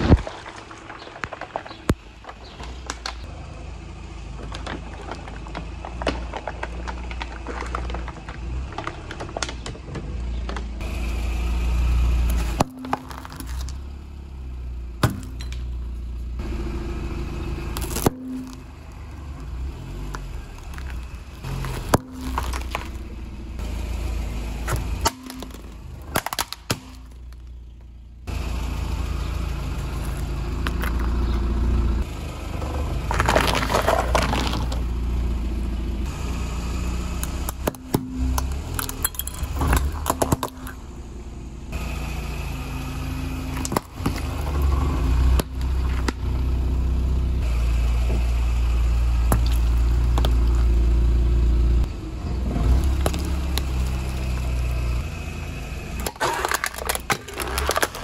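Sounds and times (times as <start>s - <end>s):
bottles crackling and crunching: 0.0s - 3.3s, 4.4s - 10.7s, 12.3s - 13.8s, 17.8s - 23.2s, 24.6s - 27.6s, 32.6s - 35.0s, 37.2s - 40.8s, 49.2s - 50.8s, 52.6s - 54.8s, 56.0s - 58.0s
engine and tyres rumbling: 0.0s - 58.0s.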